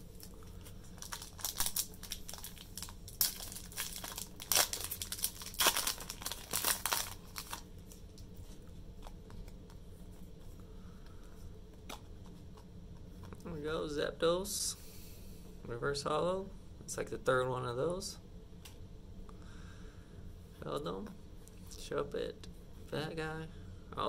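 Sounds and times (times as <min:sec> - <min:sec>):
foil wrapper crinkling and tearing: 0:00.1 - 0:08.2.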